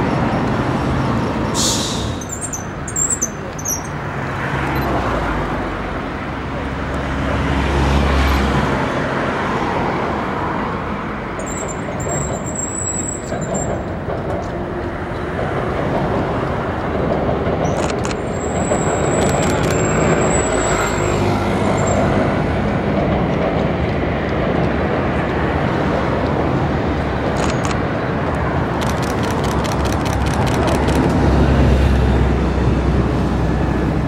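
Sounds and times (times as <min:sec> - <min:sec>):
city traffic noise: 0:00.0 - 0:34.0
train rumbling on bridge: 0:00.0 - 0:34.0.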